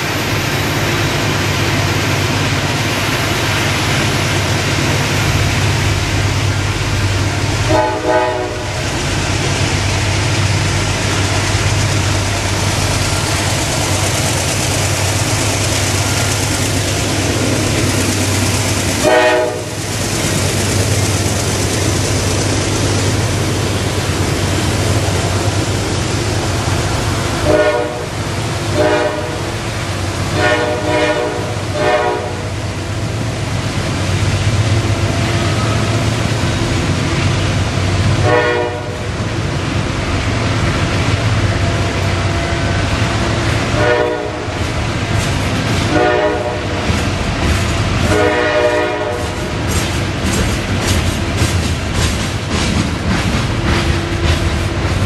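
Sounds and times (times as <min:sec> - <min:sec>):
diesel locomotive droning: 0:00.0 - 0:55.0
train horn blasts: 0:07.6 - 0:08.8, 0:19.0 - 0:19.8, 0:27.4 - 0:29.6, 0:30.3 - 0:32.6, 0:35.3 - 0:36.0, 0:38.2 - 0:39.1, 0:43.7 - 0:44.5, 0:45.9 - 0:46.9, 0:48.0 - 0:49.5.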